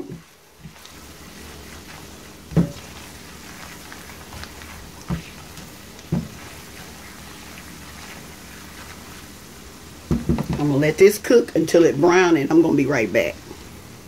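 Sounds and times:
food sizzling in a frying pan: 0.0 - 11.4
spoon knocking on pan: 10.1 - 10.6.

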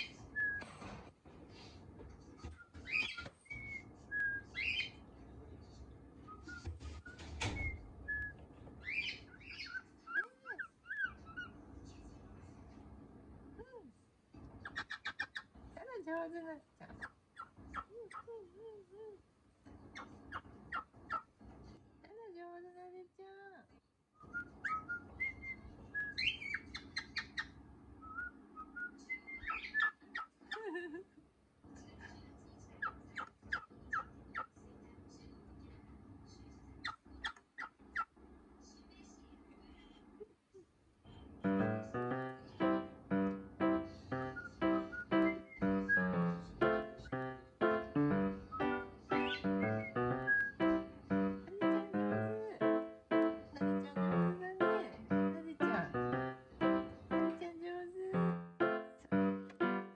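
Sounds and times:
cockatiel chirping and whistling: 2.5 - 5.0, 6.3 - 10.2, 24.2 - 30.0, 44.3 - 46.5, 48.0 - 50.9.

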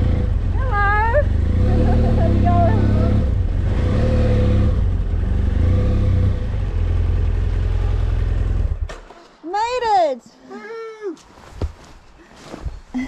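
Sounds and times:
motorcycle engine at low speed: 0.0 - 9.2.

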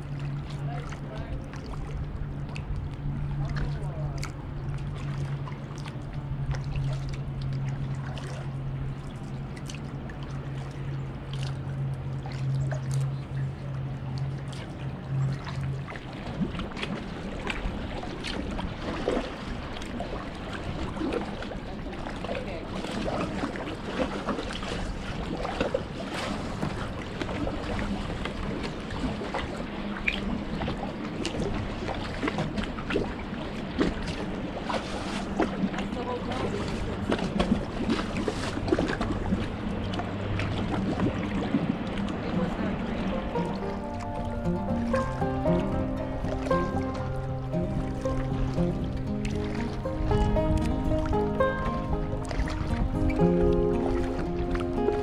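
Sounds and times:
small water splashes: 0.0 - 55.0
kayak paddle strokes: 15.4 - 55.0.

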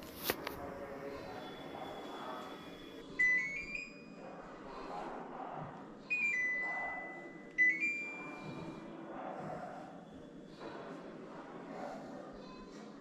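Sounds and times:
air conditioner electronic chimes: 0.7 - 4.3, 6.1 - 8.9.

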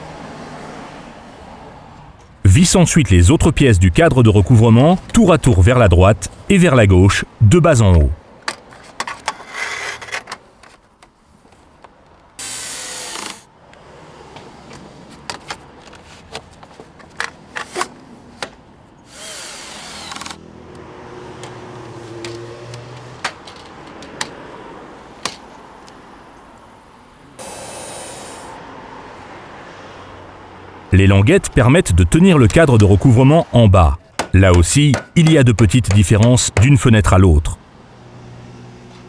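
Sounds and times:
cordless drill driving screws: 12.4 - 13.5, 19.1 - 20.4.

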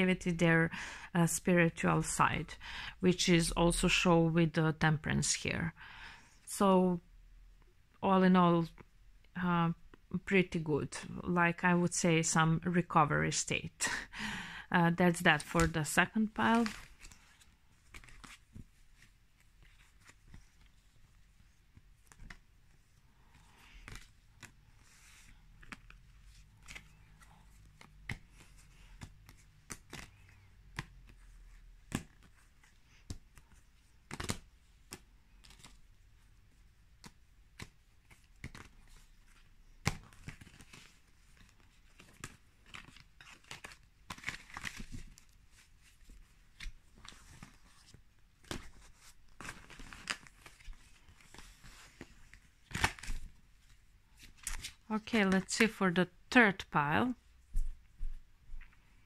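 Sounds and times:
cards being stacked: 31.8 - 35.8, 36.9 - 45.2.

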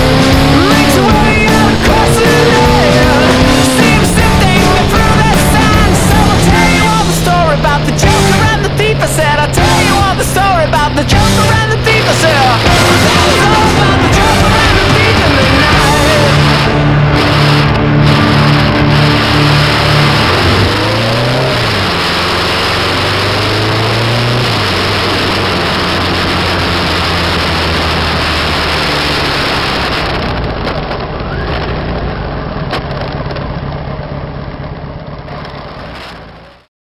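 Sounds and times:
motorcycle engine running: 0.0 - 36.7.

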